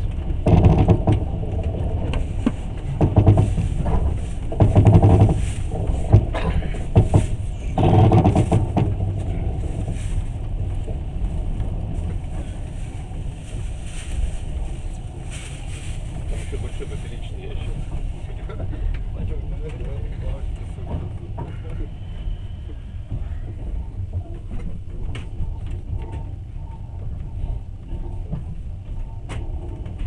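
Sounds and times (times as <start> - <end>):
train wheels rumbling on rails: 0.0 - 30.0
sharp knocks: 0.4 - 1.3, 2.4 - 9.1.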